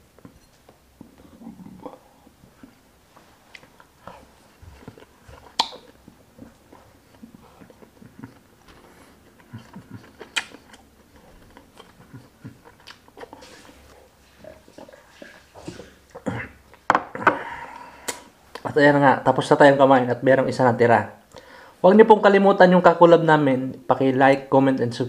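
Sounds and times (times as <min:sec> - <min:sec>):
person chewing food: 0:00.1 - 0:18.7
mouth smacks: 0:03.5 - 0:17.2, 0:17.8 - 0:18.7
person drinking soda: 0:03.6 - 0:18.4.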